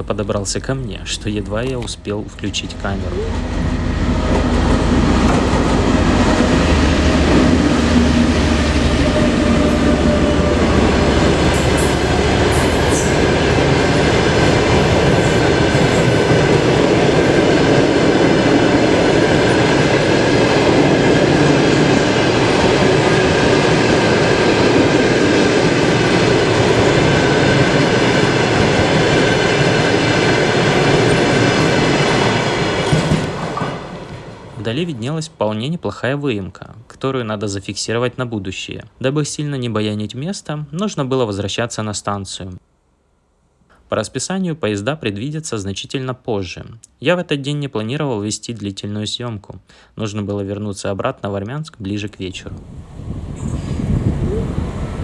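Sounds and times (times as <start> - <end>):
train coaches rolling on rails: 0.0 - 35.0
diesel locomotive engine: 0.0 - 35.4, 52.4 - 55.0.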